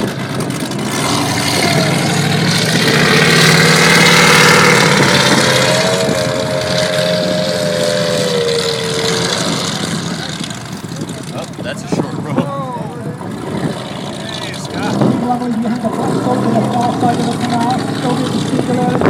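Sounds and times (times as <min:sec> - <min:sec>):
higher engine note pulling away: 0:00.0 - 0:11.7
powerboat engines passing: 0:00.0 - 0:19.0.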